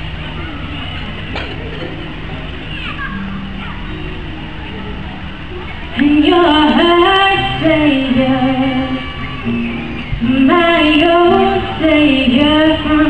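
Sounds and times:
acoustic guitar: 0.0 - 13.0
woman singing into microphone: 6.0 - 9.2, 10.2 - 13.0.

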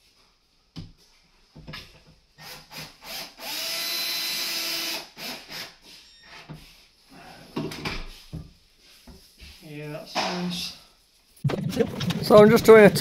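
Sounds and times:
cordless drill driving screw: 2.4 - 5.8.

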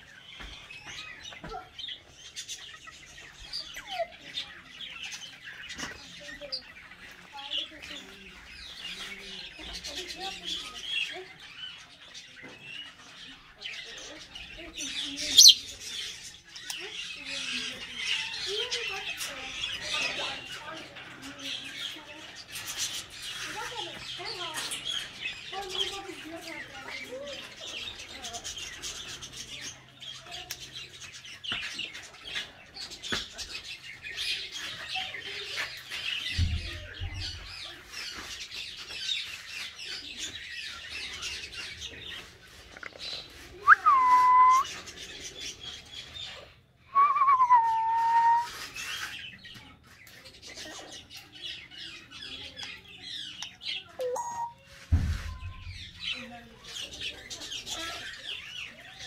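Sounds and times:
birds chirping: 0.0 - 59.0
parrot whistles: 43.6 - 44.7.

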